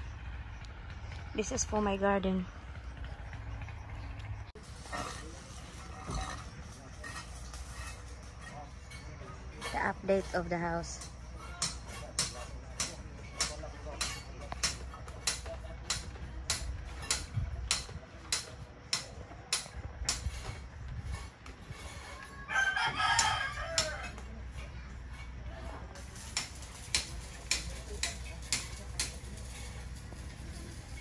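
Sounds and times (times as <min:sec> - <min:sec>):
rooster crowing: 0:22.2 - 0:24.2.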